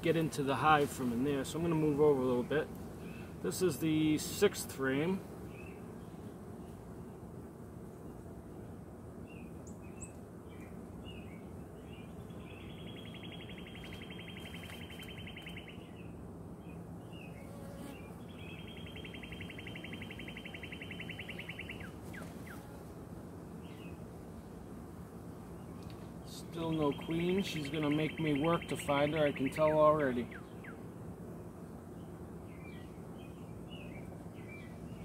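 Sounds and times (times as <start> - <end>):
honey bees buzzing: 0.0 - 35.0
bird chirps: 9.3 - 16.1, 18.3 - 22.6, 26.6 - 30.8
songbird trilling: 9.4 - 16.0, 18.3 - 22.6, 26.6 - 30.8.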